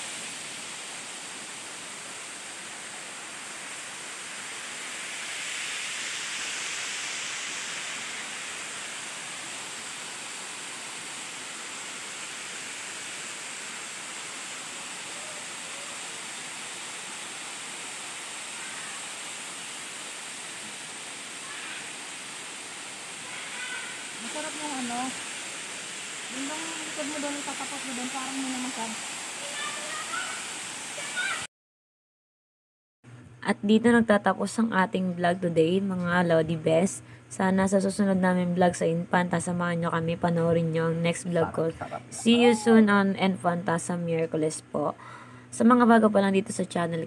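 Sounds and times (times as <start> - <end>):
small waterfall splashing onto rocks: 0.0 - 31.5.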